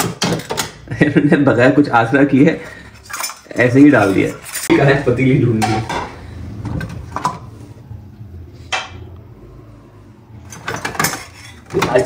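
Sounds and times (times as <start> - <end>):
pots and utensils clinking: 0.0 - 0.9, 2.6 - 7.5, 10.4 - 12.0.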